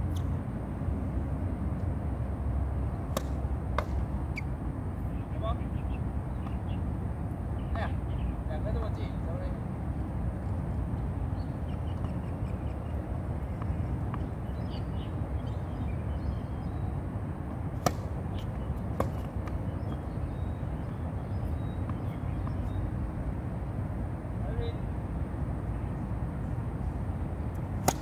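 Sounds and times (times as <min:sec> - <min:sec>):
low outdoor rumble: 0:00.0 - 0:28.0
tennis ball hits: 0:03.0 - 0:04.1, 0:17.8 - 0:20.0, 0:27.6 - 0:28.0.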